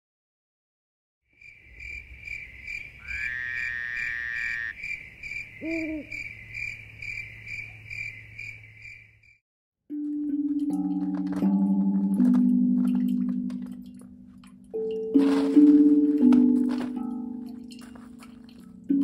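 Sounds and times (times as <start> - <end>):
held animal call: 3.0 - 4.8, 5.6 - 6.2
low hoot: 5.6 - 6.2
bell-like musical tones: 9.9 - 19.0.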